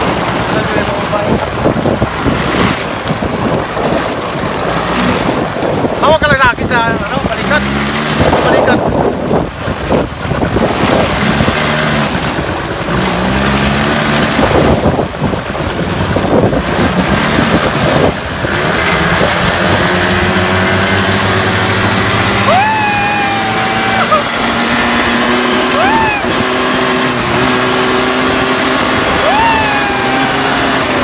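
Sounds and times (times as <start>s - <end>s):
wind on microphone: 0.0s - 31.0s
small motorbike engine: 9.7s - 31.0s.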